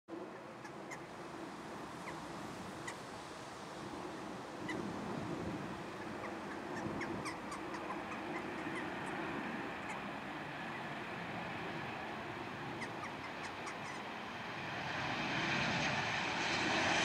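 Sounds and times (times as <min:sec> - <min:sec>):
jet engines rumbling: 0:00.1 - 0:17.0
bird chirps: 0:06.0 - 0:09.2.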